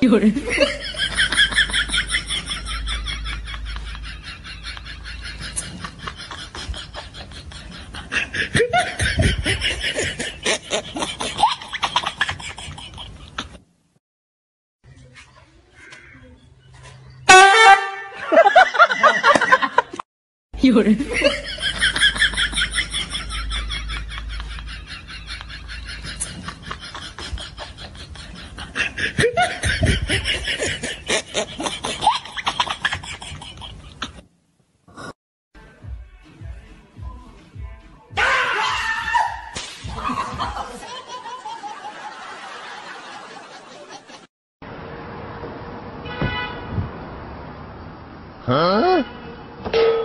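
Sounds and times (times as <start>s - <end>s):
people laughing hard: 0.4s - 13.6s, 18.2s - 20.0s, 21.0s - 34.2s, 39.9s - 44.3s.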